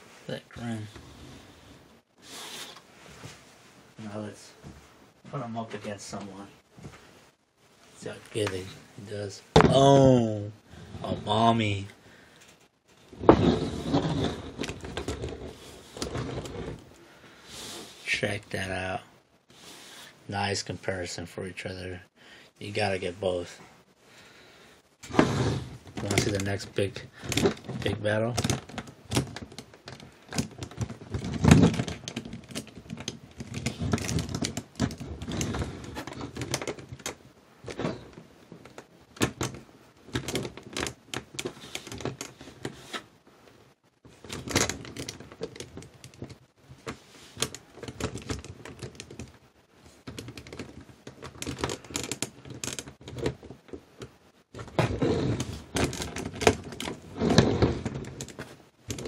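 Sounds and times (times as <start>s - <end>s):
plastic figures clicking and knocking: 12.4s - 16.9s, 25.8s - 43.1s, 44.0s - 59.0s.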